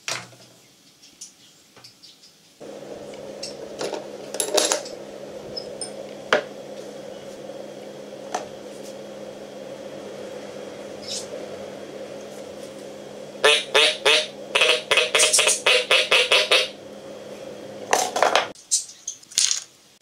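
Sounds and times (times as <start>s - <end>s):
steady low hum: 2.6s - 18.6s
small hard objects clinking: 19.3s - 19.7s.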